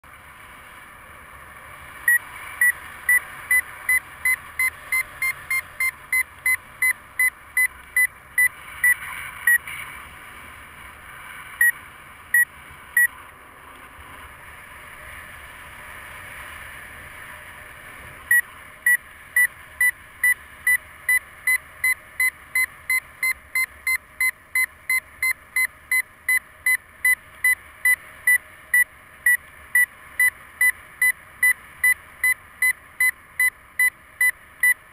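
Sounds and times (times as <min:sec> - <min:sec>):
variometer short high beeps: 0:02.1 - 0:09.6, 0:11.6 - 0:13.1, 0:18.3 - 0:34.9.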